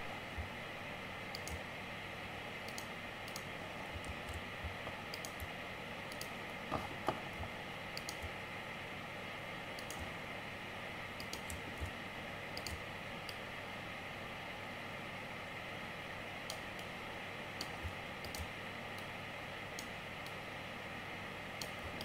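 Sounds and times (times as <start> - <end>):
room tone hiss: 0.0 - 22.0
computer mouse clicks: 1.3 - 1.7, 2.6 - 5.5, 6.1 - 8.4, 9.8 - 10.2, 11.2 - 13.4, 16.4 - 17.0, 17.6 - 19.1, 19.7 - 20.4, 21.5 - 22.0.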